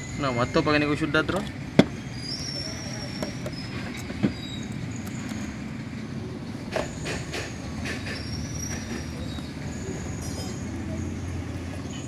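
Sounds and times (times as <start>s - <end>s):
high squeals: 0.0s - 5.6s, 7.9s - 11.2s
street traffic rumble: 0.0s - 12.0s.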